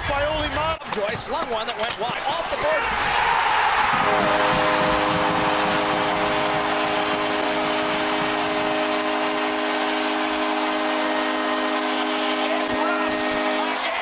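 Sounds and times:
crowd cheering: 0:00.0 - 0:14.0
goal horn blast: 0:03.8 - 0:14.0.

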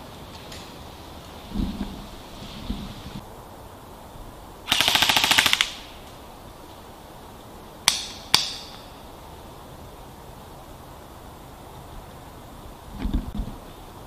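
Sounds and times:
airsoft gun full-auto burst: 0:04.7 - 0:05.9.

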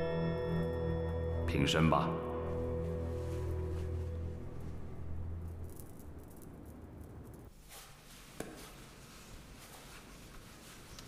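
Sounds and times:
low background music: 0:00.0 - 0:06.0.

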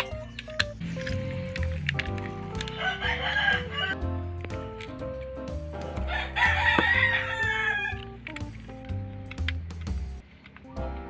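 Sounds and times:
background music: 0:00.0 - 0:11.0
rooster crowing: 0:02.7 - 0:04.0, 0:06.0 - 0:08.0.

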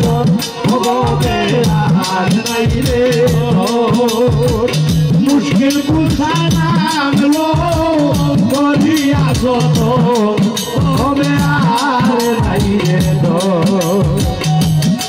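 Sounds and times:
drum beaten in steady rhythm: 0:00.0 - 0:15.0
held melody line: 0:00.0 - 0:15.0.

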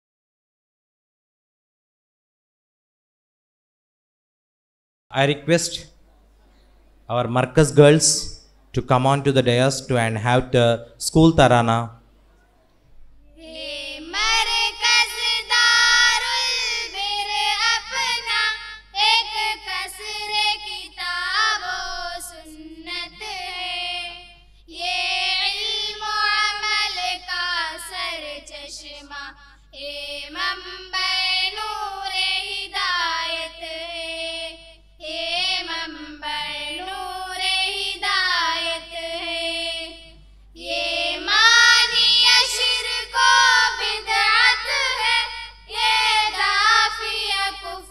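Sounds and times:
low mains hum: 0:05.1 - 0:47.9
girls singing into a microphone: 0:13.3 - 0:47.9.

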